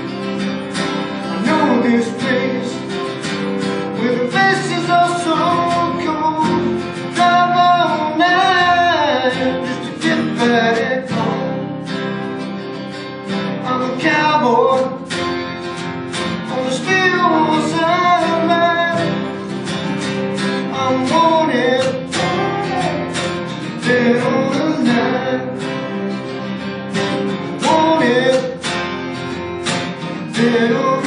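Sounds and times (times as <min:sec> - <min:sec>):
acoustic guitars: 0:00.0 - 0:31.0
man singing: 0:01.2 - 0:12.0, 0:13.6 - 0:15.2, 0:16.4 - 0:26.2, 0:27.3 - 0:28.8, 0:30.0 - 0:31.0.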